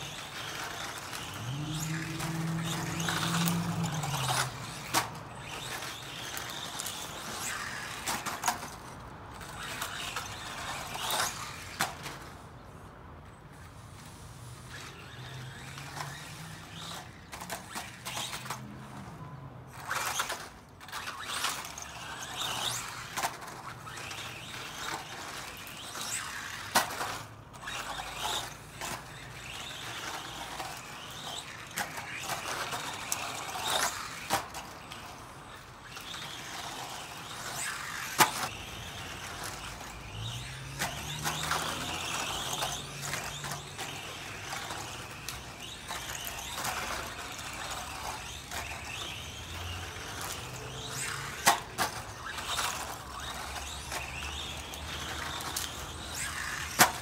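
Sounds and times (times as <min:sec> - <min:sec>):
faint electric motor whine: 0:00.0 - 0:08.3.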